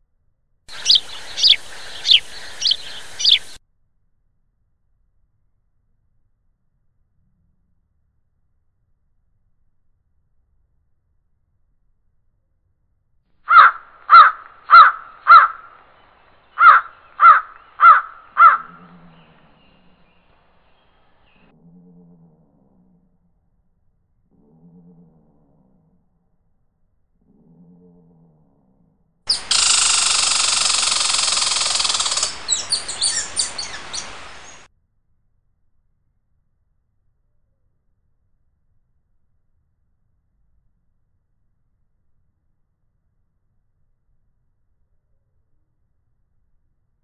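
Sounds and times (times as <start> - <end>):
birds chirping: 0.7 - 3.6, 13.5 - 21.4, 29.3 - 34.7
crow cawing: 0.7 - 3.6, 13.5 - 15.8, 16.6 - 18.9, 29.3 - 34.7.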